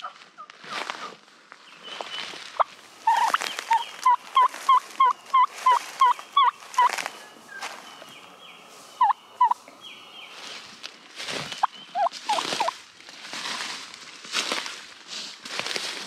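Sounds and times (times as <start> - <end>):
footsteps in dry leaves: 0.0 - 16.0
turkey yelps: 2.6 - 7.0, 9.0 - 9.6, 11.9 - 12.7.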